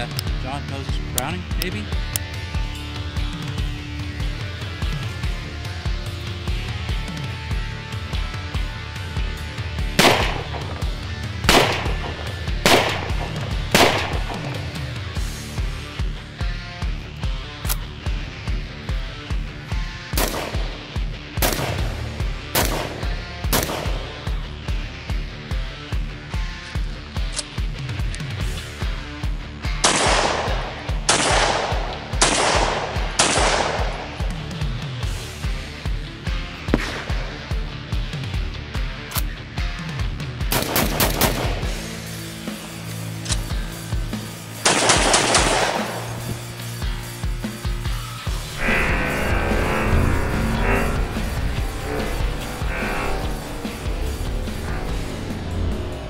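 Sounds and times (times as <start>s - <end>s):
rock music with electric guitar: 0.0s - 56.0s
rifle shots: 10.0s - 14.8s, 20.2s - 24.2s, 29.8s - 34.2s, 36.7s - 37.6s, 40.5s - 41.7s, 44.6s - 46.2s.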